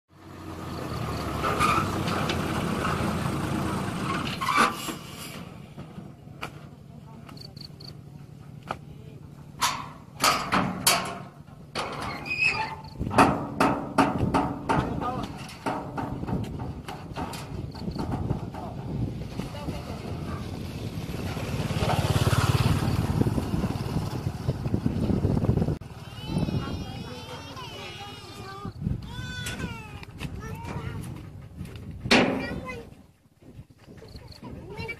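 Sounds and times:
truck engine idling: 0.2 - 7.1.

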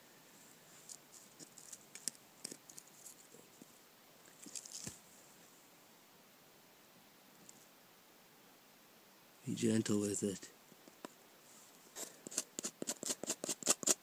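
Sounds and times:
tinder rustling: 0.4 - 5.4
fungus being scraped by hand: 12.0 - 14.0.

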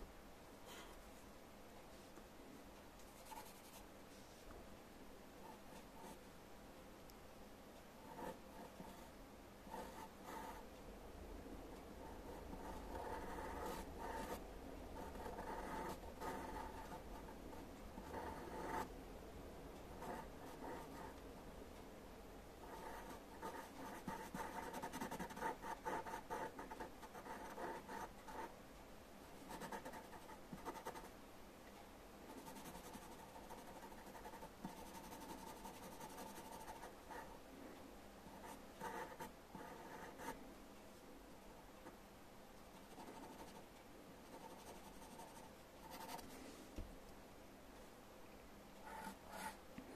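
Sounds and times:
pencil scratching on paper: 3.1 - 3.8, 12.1 - 14.4, 15.0 - 17.3, 22.6 - 28.5, 29.5 - 31.1, 32.3 - 37.3, 38.3 - 40.4, 42.9 - 43.6, 44.2 - 46.2, 48.8 - 49.6.

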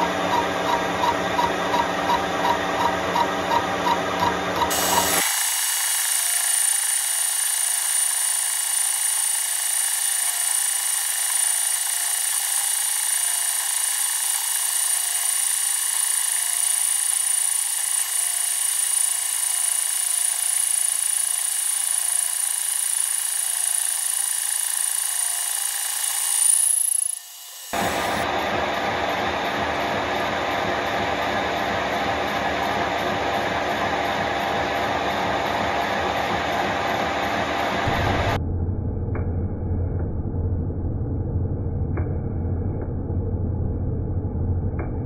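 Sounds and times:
high-pitched whine: 0.0 - 28.3, 37.8 - 45.0
lathe cutting steel: 4.6 - 28.2.

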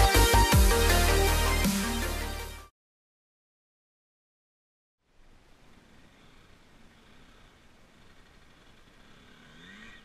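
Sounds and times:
electronic dance music with heavy bass: 0.0 - 2.7.

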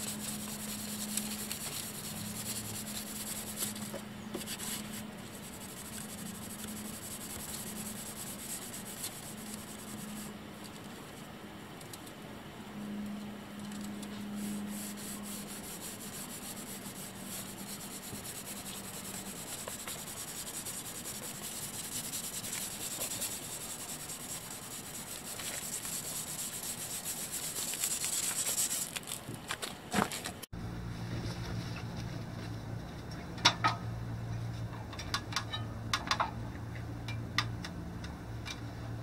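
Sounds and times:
sandpaper rubbing on panel: 0.0 - 10.3, 14.2 - 29.2.

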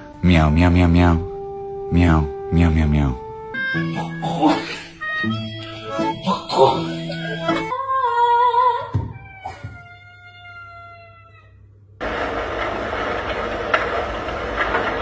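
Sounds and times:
cat meowing: 9.1 - 11.6
steady rushing noise: 12.0 - 15.0.

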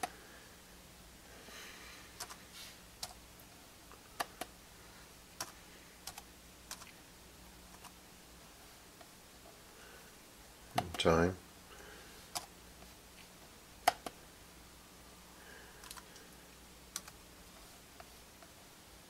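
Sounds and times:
laptop keyboard clicks: 13.9 - 14.2, 15.8 - 16.2, 17.0 - 17.2.

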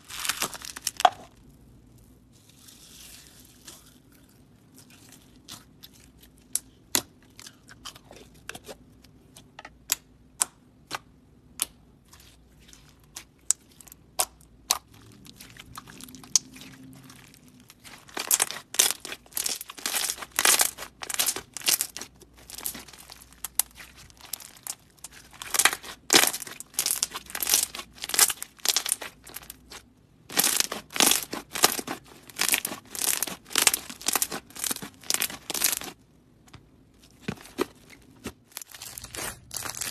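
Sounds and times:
slime crackling and crunching: 0.0 - 8.4, 12.0 - 36.0, 37.0 - 39.9
slime squished by hand: 11.6 - 36.0, 37.0 - 39.9
slime popping: 17.8 - 36.0.

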